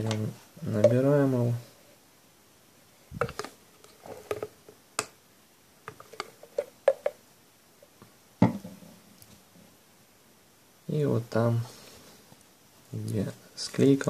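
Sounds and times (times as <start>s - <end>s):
bottle and phone handled on table: 3.1s - 4.6s, 5.9s - 7.2s.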